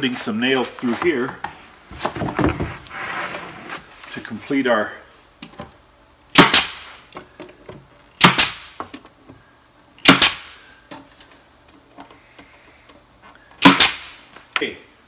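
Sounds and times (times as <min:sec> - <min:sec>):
nail gun shots: 0:06.3 - 0:06.9, 0:08.2 - 0:08.8, 0:10.0 - 0:10.6, 0:13.6 - 0:14.2.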